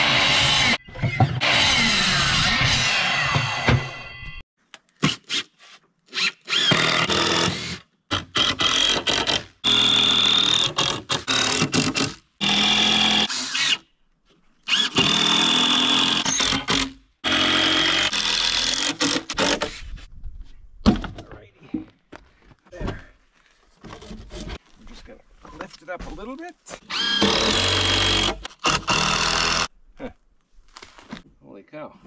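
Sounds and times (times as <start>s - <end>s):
power drill driving screws: 6.1s - 13.8s, 14.7s - 19.7s, 26.9s - 29.7s.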